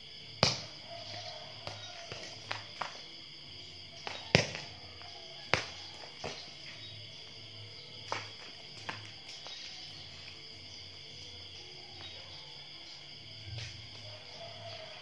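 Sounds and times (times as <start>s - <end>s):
small ball bouncing on tiles: 0.4s - 3.1s, 4.0s - 6.8s, 8.0s - 9.7s.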